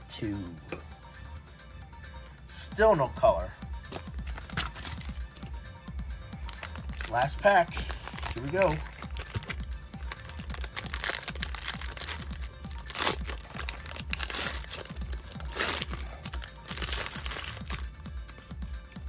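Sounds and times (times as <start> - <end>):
background music with low beat: 0.0 - 19.0
foil wrapper crinkling and tearing: 3.9 - 5.3, 6.4 - 17.9.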